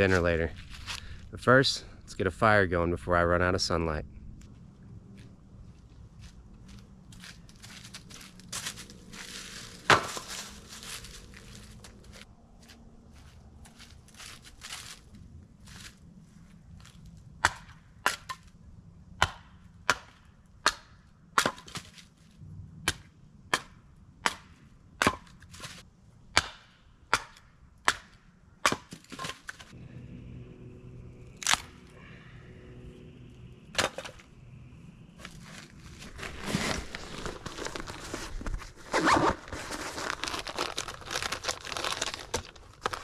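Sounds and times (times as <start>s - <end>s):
rustling of clothes and bags: 6.0s - 16.0s, 35.2s - 43.0s
hatchet splitting wood: 26.3s - 29.6s.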